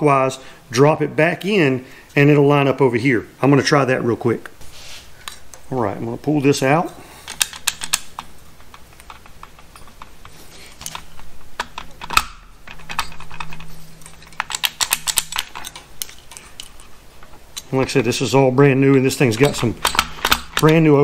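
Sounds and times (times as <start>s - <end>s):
metallic clicks and taps: 7.3s - 17.8s.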